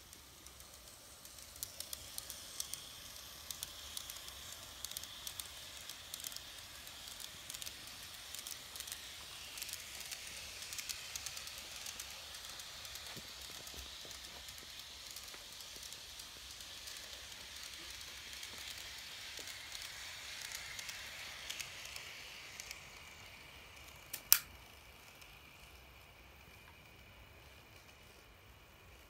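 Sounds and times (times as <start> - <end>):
model train motor whirring: 0.0 - 29.0
sharp click: 24.1 - 24.5.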